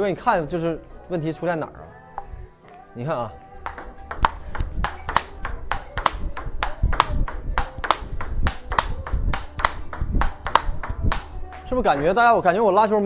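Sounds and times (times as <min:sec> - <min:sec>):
table tennis ball clicks: 0:03.6 - 0:12.2.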